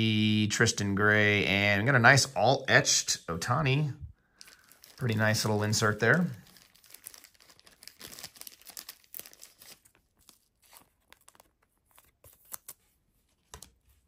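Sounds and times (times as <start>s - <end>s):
plastic sleeve crinkling: 4.2s - 13.9s.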